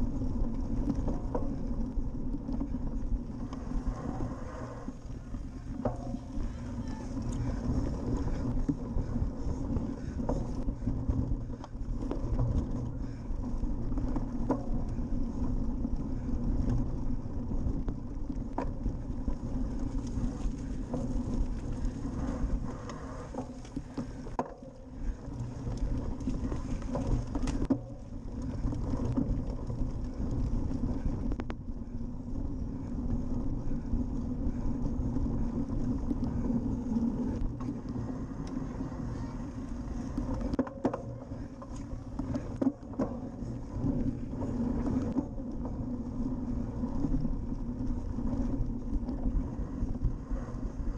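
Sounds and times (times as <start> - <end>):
bicycle knocks and rattles: 0.0 - 3.8, 5.2 - 32.0, 40.0 - 46.0
wind rush on microphone: 0.0 - 50.9.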